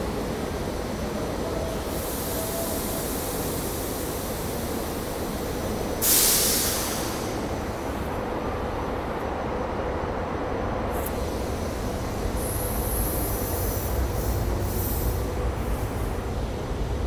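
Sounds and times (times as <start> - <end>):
train hum and hiss: 0.0 - 17.0
loud burst of air: 5.9 - 7.8, 10.9 - 16.2.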